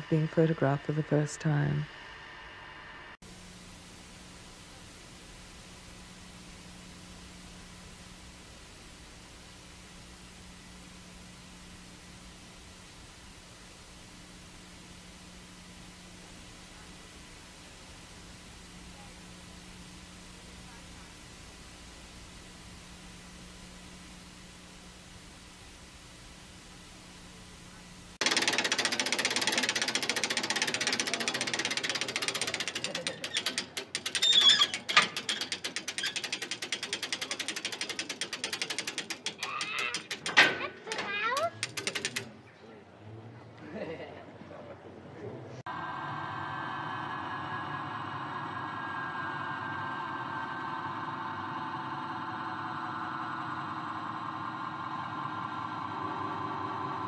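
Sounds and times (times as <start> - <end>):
rotating mechanism clicking fast: 28.2 - 42.4
brief loud squeak: 34.1 - 35.1.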